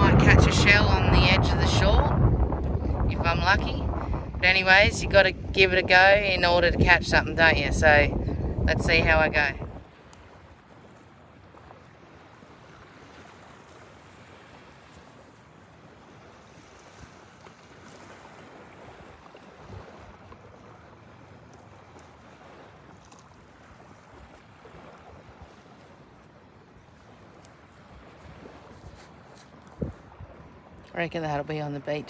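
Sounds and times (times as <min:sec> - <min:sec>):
small waves washing onto sand: 0:00.0 - 0:32.0
wind: 0:00.0 - 0:32.0.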